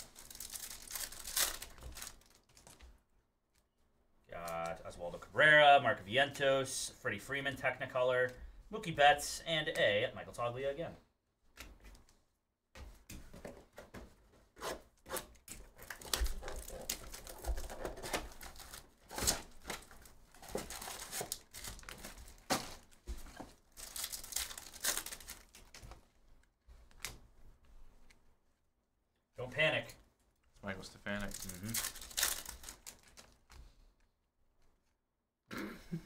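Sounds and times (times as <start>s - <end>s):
foil packs crinkling and tearing: 0.0s - 2.8s, 15.7s - 25.9s, 31.1s - 33.6s.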